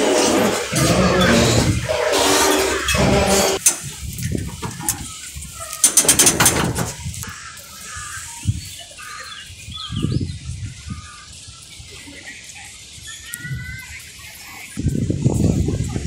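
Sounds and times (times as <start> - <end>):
footsteps on metal gangway: 0.0 - 5.2, 5.8 - 7.2.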